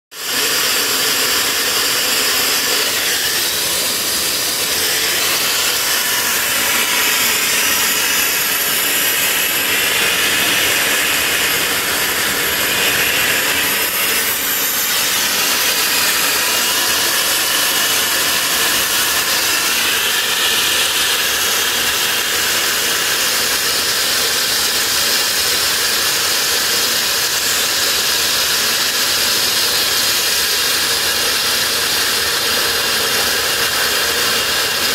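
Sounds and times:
turbojet rushing hiss: 0:00.2 - 0:22.7.

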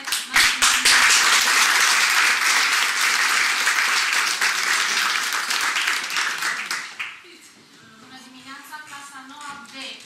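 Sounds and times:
people applauding: 0:00.0 - 0:07.2.

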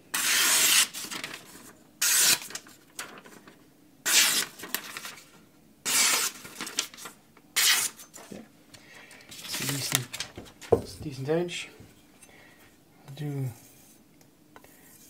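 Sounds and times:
knife slicing paper: 0:00.1 - 0:03.1, 0:04.1 - 0:05.2, 0:05.9 - 0:08.0.

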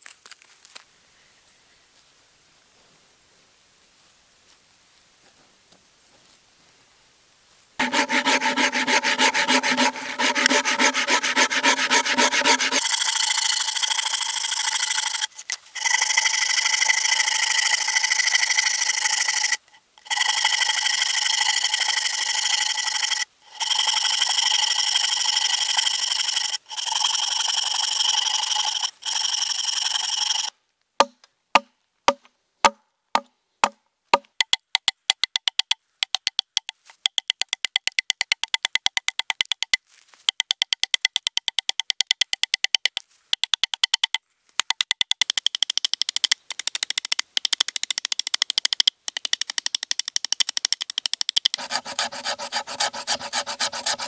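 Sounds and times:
hand saw cutting wood: 0:07.8 - 0:20.9, 0:21.6 - 0:30.5, 0:51.5 - 0:54.0.

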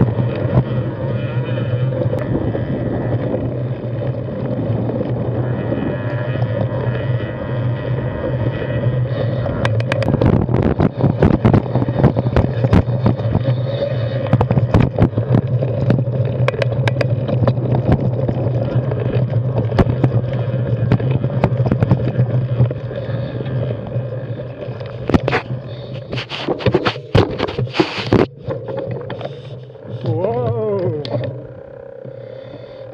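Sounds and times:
tyres and wind rumble: 0:00.0 - 0:32.1
bike clacking over rocks: 0:14.3 - 0:22.8.

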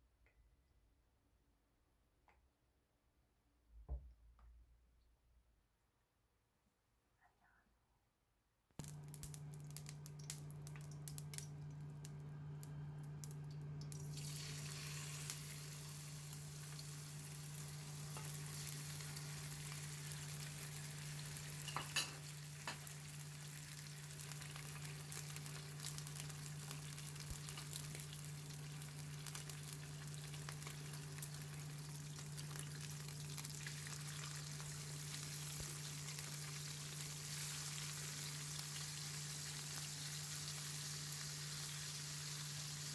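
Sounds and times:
low hum: 0:08.8 - 0:14.1
steak sizzling in a frying pan: 0:13.9 - 0:42.9.

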